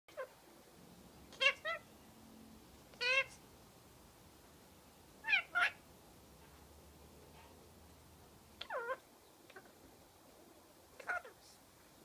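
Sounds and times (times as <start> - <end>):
parakeet calls: 0.1 - 0.4, 1.3 - 1.9, 2.9 - 3.4, 5.2 - 5.8, 8.6 - 9.8, 11.0 - 11.4.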